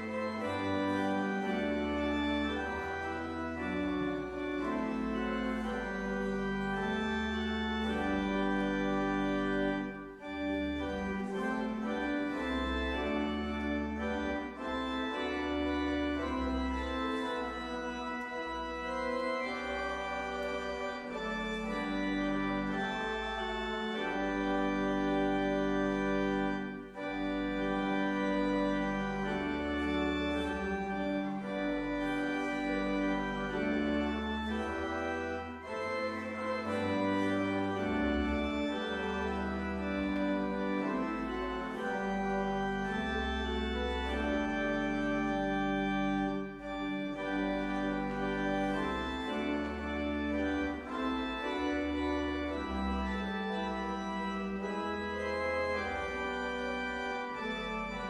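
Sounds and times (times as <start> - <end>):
church organ playing chords: 0.0 - 58.0.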